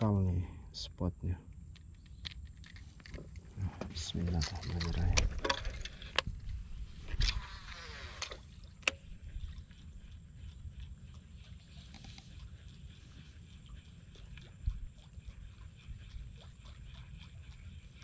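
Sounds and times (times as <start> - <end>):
low steady background: 0.0 - 18.0
fishing reel spool whirring: 4.2 - 18.0.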